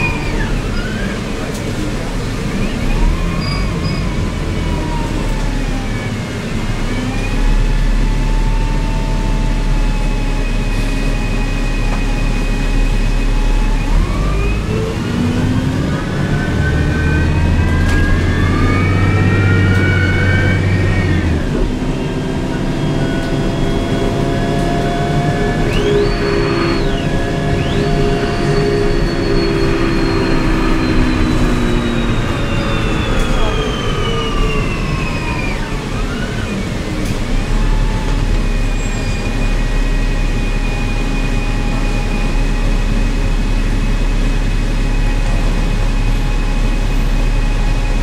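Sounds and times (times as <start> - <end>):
bus engine hum: 0.0 - 48.0
high drivetrain whine: 0.0 - 48.0.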